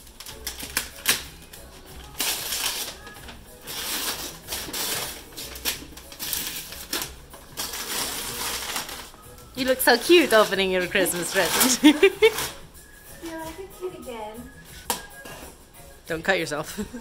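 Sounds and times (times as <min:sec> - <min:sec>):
wrapping paper ripping: 0:00.0 - 0:09.2, 0:09.8 - 0:12.6.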